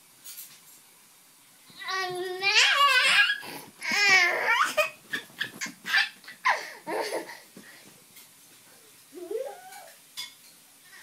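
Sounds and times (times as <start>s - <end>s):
toddler laughing and vocalizing: 1.8s - 7.5s, 9.2s - 10.0s.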